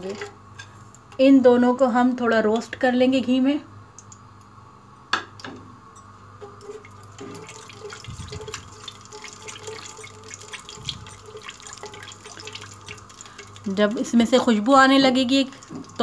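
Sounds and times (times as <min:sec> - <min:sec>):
spatula stirring: 0:06.4 - 0:16.0
nuts sizzling in hot fat: 0:06.7 - 0:16.0.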